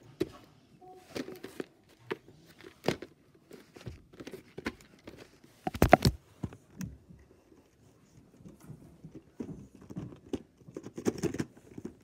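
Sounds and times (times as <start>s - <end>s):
plastic case clicks and knocks: 5.7s - 6.2s.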